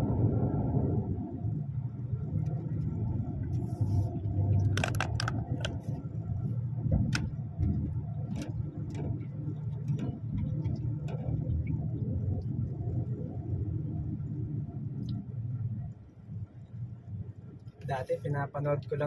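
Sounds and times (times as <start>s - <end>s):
clicks and rattles: 4.6s - 5.9s.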